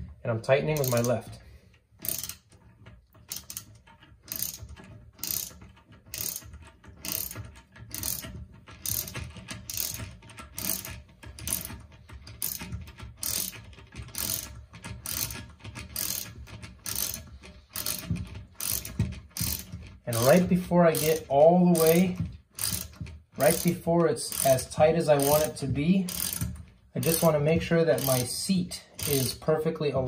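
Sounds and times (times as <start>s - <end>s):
ratchet wrench clicking: 0.6s - 29.7s.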